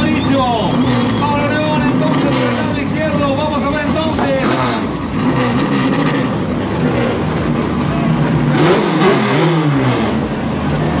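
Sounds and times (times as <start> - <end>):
car engine revving hard: 0.0 - 11.0.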